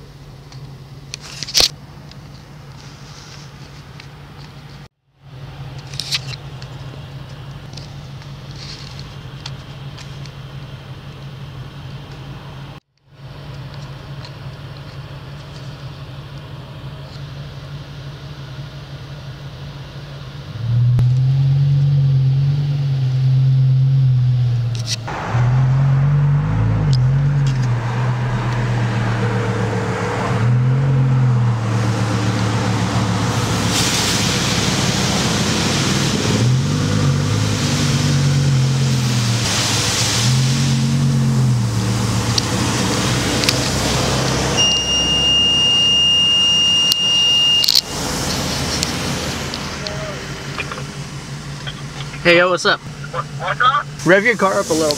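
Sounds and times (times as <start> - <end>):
car engine idling with throttle blips: 0.0 - 54.9
steady high beep: 44.6 - 47.7.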